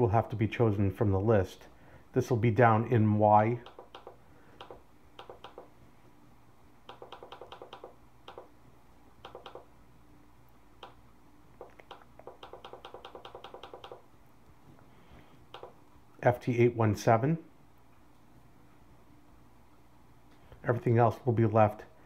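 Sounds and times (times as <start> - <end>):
computer mouse clicking: 3.6 - 5.7, 6.9 - 8.5, 9.2 - 9.7, 10.8 - 11.0, 11.6 - 14.0, 15.5 - 15.8.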